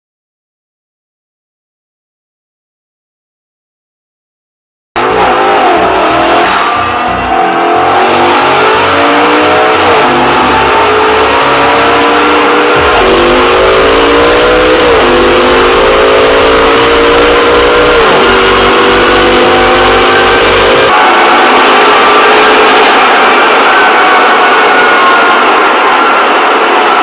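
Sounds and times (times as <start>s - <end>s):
engine accelerating with upshifts: 5.0s - 23.8s.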